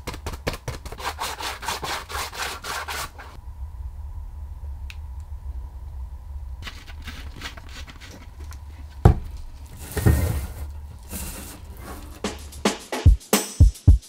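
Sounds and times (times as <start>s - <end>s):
low steady hum: 3.2s - 12.8s
scraping rustle: 6.6s - 12.8s.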